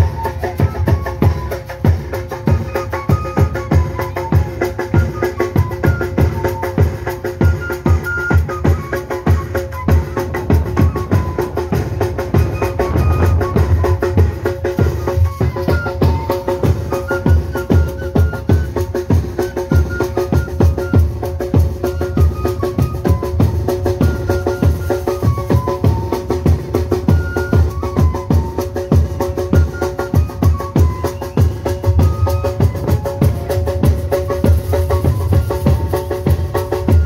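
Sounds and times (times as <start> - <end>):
high flute melody: 0.0 - 37.0.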